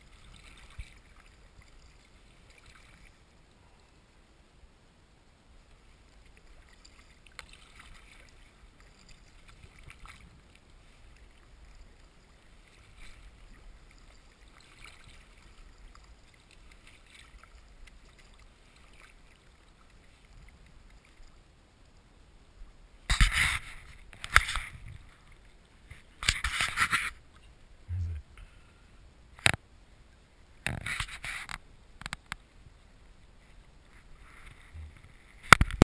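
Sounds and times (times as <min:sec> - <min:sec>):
paddle swishing in water: 0:00.0 - 0:03.7, 0:05.7 - 0:21.4
water splashes: 0:00.0 - 0:04.0, 0:05.6 - 0:22.0, 0:23.0 - 0:28.6.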